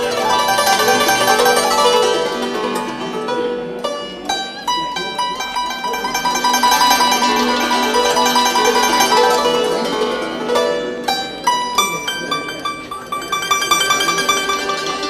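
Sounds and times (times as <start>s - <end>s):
instrumental music: 0.0s - 15.0s.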